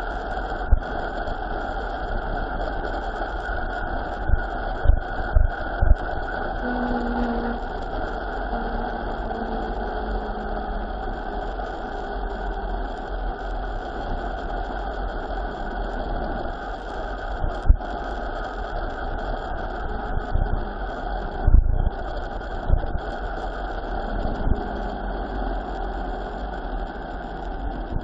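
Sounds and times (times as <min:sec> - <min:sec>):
steady engine-like rushing noise: 0:06.6 - 0:11.4, 0:23.9 - 0:28.0.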